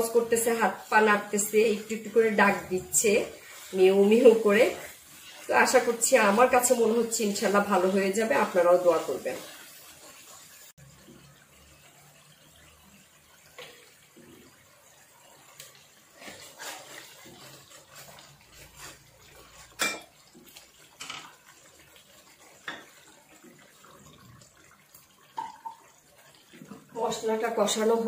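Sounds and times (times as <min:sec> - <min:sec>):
frying hiss: 0:00.0 - 0:28.0
spatula scraping a pan: 0:01.5 - 0:10.7, 0:15.6 - 0:21.4.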